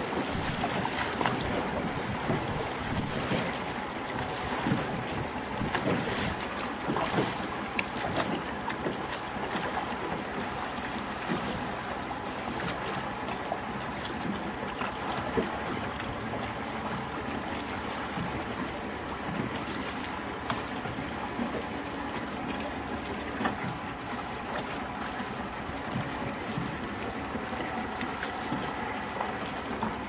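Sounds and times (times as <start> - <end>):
wind on microphone: 0.0 - 8.3
water lapping around boat: 0.0 - 30.0.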